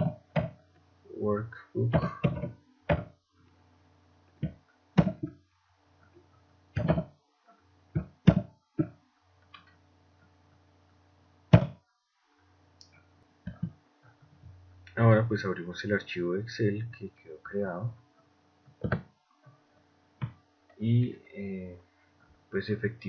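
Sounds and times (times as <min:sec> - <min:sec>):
faint low hum: 0:00.0 - 0:23.0.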